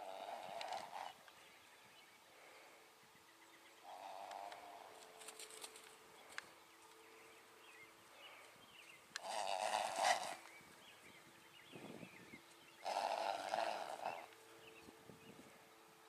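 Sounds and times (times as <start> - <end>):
horse snorting: 0.0 - 1.2, 3.8 - 5.0, 9.2 - 10.5, 12.8 - 14.3.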